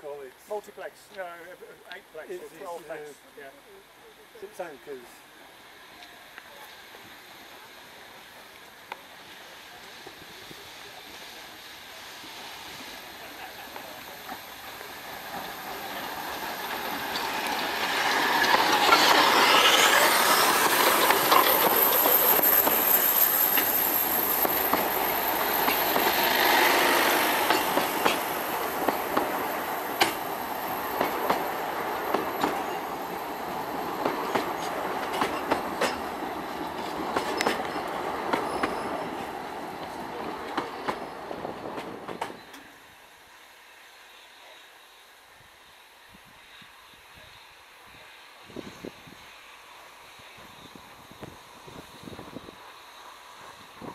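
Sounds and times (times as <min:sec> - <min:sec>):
steam train passing: 0:00.0 - 0:53.9
wheels clicking over rail joints: 0:14.3 - 0:42.7.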